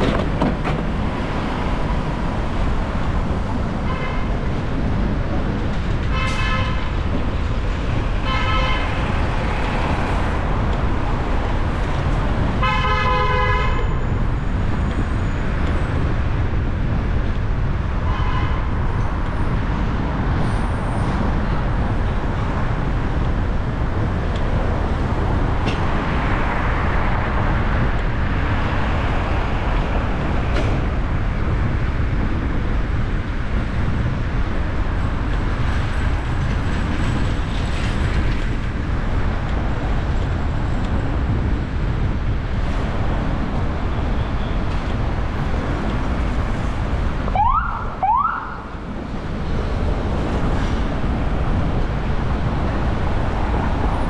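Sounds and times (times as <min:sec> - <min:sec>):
city traffic rumble: 0:00.0 - 0:54.0.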